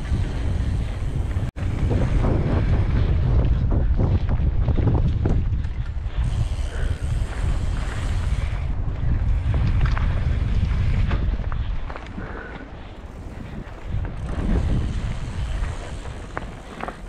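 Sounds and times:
bike rattling over rough ground: 0:00.0 - 0:17.0
wind buffeting microphone: 0:00.0 - 0:17.0.

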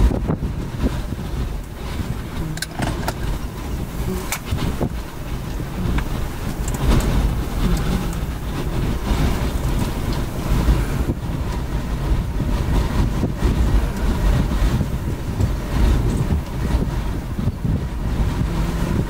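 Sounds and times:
strong wind buffeting microphone: 0:00.0 - 0:19.0.

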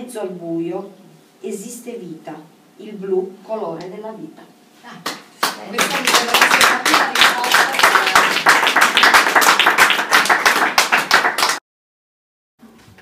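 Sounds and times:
small audience applauding: 0:05.1 - 0:11.6.

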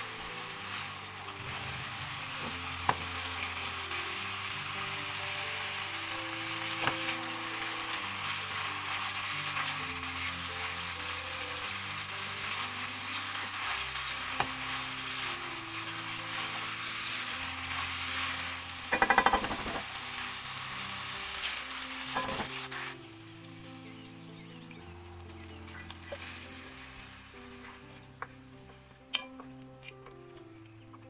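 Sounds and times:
meat sizzling in oil: 0:00.0 - 0:29.5
spatula stirring in a wok: 0:00.1 - 0:23.0.

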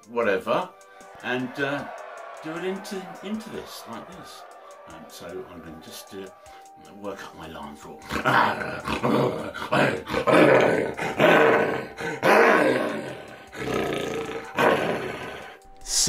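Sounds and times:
breaths: 0:06.4 - 0:06.8.

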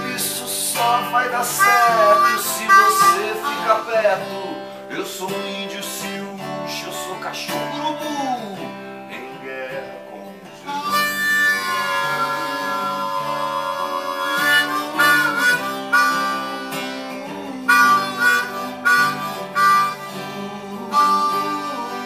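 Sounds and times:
harmonica playing: 0:00.0 - 0:04.8, 0:10.0 - 0:22.0
acoustic guitar: 0:00.0 - 0:22.0.

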